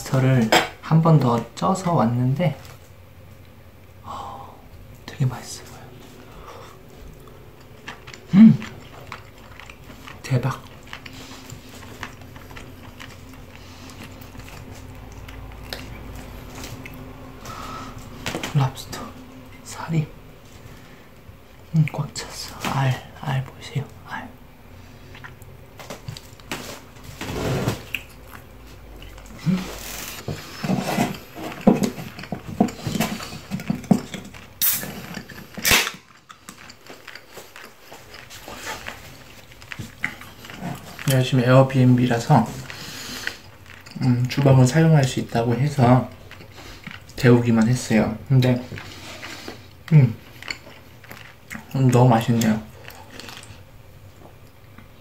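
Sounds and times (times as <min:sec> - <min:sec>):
chewing and mouth noises: 0:04.7 - 0:19.8, 0:20.4 - 0:55.0
lobster shell cracking: 0:31.6 - 0:41.1
beer can opening crack and hiss: 0:34.6 - 0:34.9.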